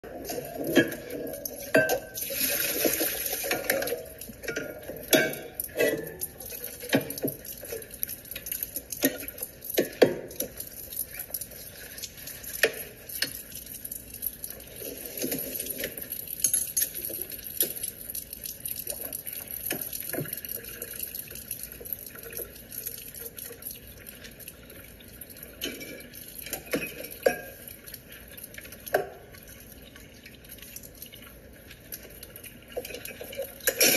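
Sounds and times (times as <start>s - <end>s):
water running into sink: 0.0s - 33.9s
dishes clinking: 0.2s - 7.8s, 15.2s - 17.9s, 25.5s - 27.7s, 32.8s - 33.9s.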